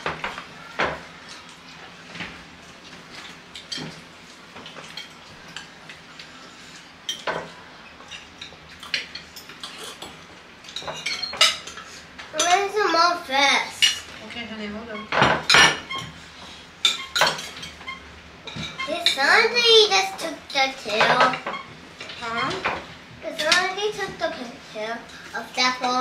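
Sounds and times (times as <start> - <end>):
cutlery clinking on plates: 7.1 - 12.6, 16.9 - 19.2.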